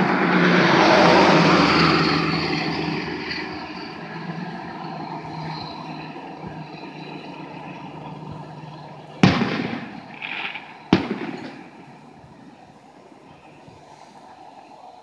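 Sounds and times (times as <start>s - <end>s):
low traffic hum: 0.0s - 15.0s
firework shells booming: 9.2s - 12.6s
firework hiss: 9.2s - 15.0s.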